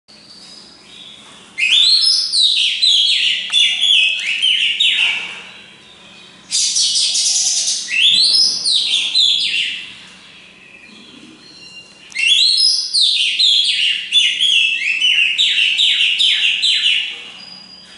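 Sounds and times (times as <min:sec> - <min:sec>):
magpie-robin singing whistled phrases: 0:00.2 - 0:05.2, 0:06.1 - 0:09.9, 0:11.4 - 0:17.9.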